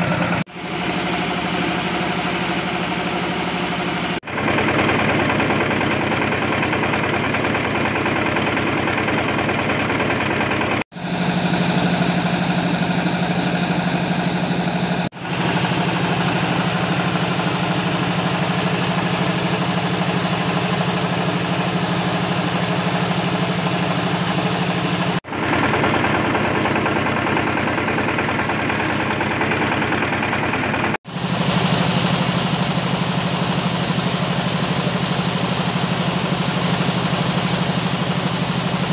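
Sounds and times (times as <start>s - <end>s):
coffee huller machine droning: 0.0s - 38.9s.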